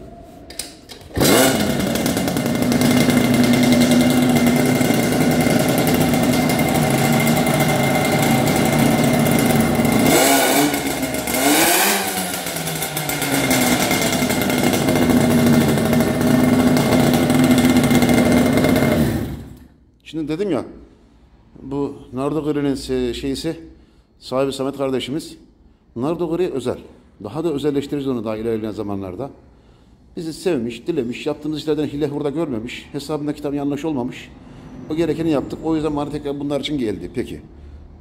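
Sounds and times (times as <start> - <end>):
moped engine running: 1.0 - 19.6.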